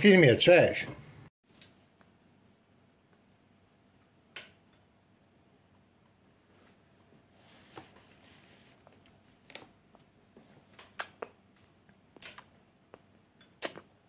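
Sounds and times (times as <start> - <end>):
baby's wet mouth clicks: 10.8 - 11.3, 12.2 - 13.9.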